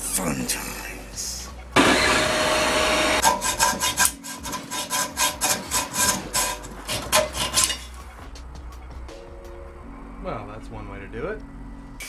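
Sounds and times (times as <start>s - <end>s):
hacksaw blade sawing steel: 1.8s - 8.0s.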